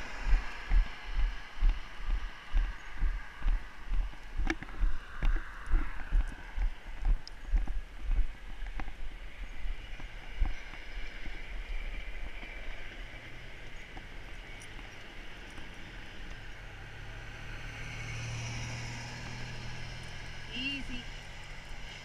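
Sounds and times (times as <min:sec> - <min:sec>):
pickup truck passing: 0:12.9 - 0:22.0.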